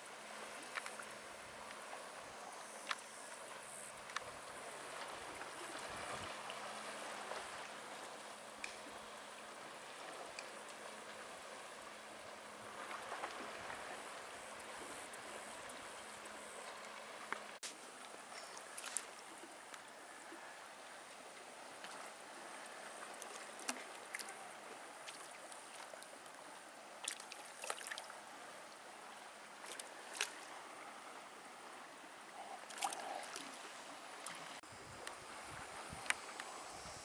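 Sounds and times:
choppy water washing: 0:00.0 - 0:37.0
water slaps and ticks: 0:00.5 - 0:02.0, 0:02.8 - 0:06.6, 0:07.2 - 0:09.1, 0:10.0 - 0:11.2, 0:12.8 - 0:19.9, 0:21.8 - 0:22.2, 0:22.9 - 0:26.4, 0:27.0 - 0:28.2, 0:29.6 - 0:30.5, 0:32.4 - 0:35.2, 0:35.9 - 0:36.6.

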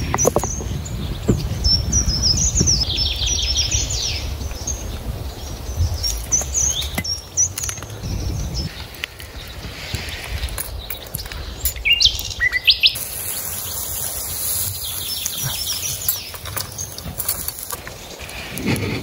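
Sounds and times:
small birds chirping: 0:00.0 - 0:19.0
patties sizzling on a grill: 0:12.9 - 0:19.0.

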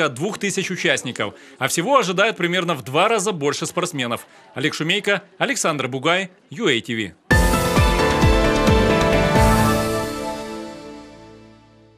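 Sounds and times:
news theme music: 0:07.3 - 0:11.9.

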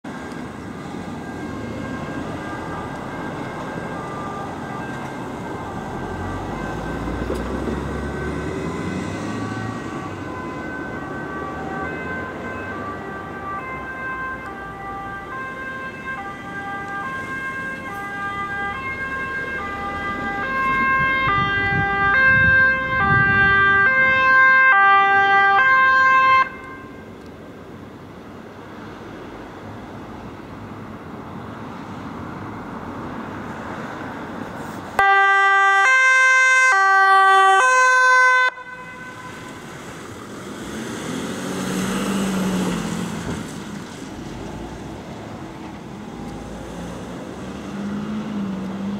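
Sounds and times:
ambulance two-tone siren: 0:00.0 - 0:27.1, 0:35.0 - 0:40.0
road traffic rumble: 0:00.0 - 0:48.9.

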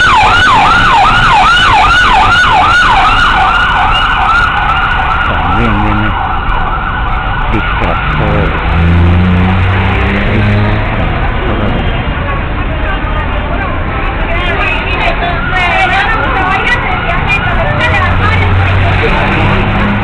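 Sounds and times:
emergency vehicle siren: 0:00.0 - 0:20.0
low steady drone: 0:09.5 - 0:12.0.

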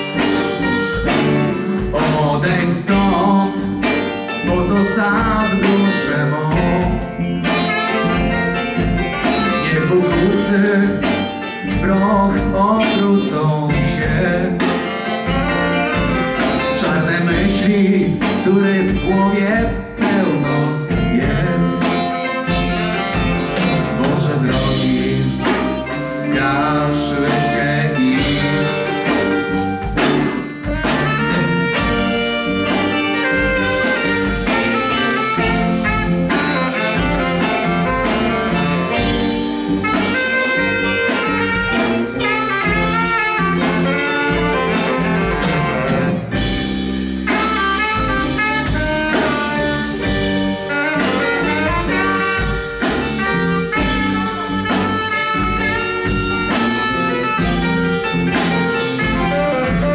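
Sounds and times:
live blues band playing: 0:00.0 - 0:59.9
steady drum beat: 0:00.0 - 0:59.9
tenor saxophone: 0:00.0 - 0:59.9.

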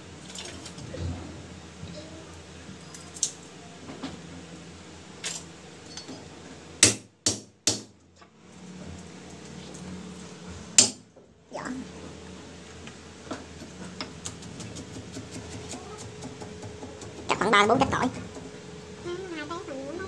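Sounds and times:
knife chopping on wooden board: 0:13.6 - 0:17.3.

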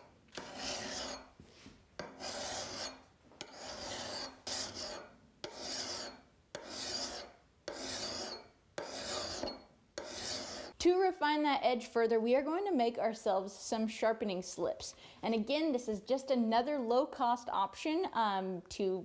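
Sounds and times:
hand file scraping steel: 0:00.0 - 0:01.4, 0:02.0 - 0:10.8.

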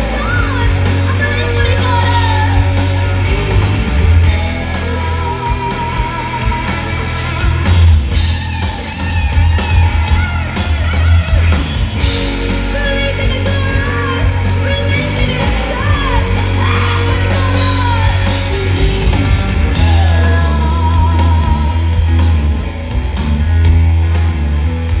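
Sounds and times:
woman singing: 0:00.0 - 0:07.5, 0:12.4 - 0:22.0
drums: 0:00.0 - 0:25.0
electric guitar: 0:00.0 - 0:25.0
heavy bass: 0:00.0 - 0:25.0.

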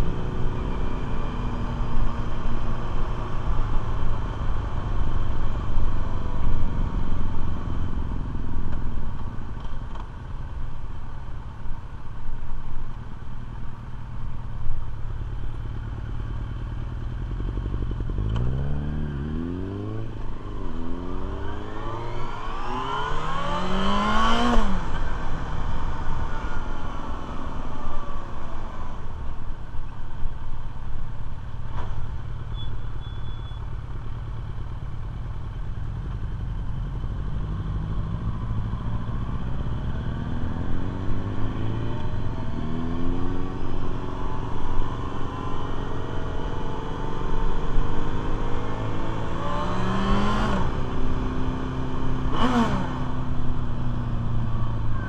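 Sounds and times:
road noise: 0:00.0 - 0:55.0
motorcycle engine: 0:14.5 - 0:29.4.

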